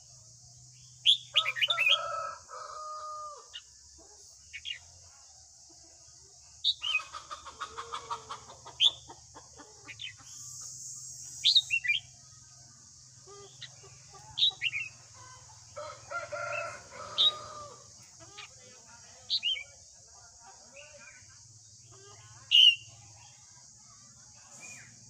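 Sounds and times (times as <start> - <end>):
bird whistled song: 1.0 - 2.0, 10.0 - 12.1, 22.5 - 22.9
harsh chattering bird call: 6.6 - 12.1, 13.3 - 15.1, 21.9 - 22.9.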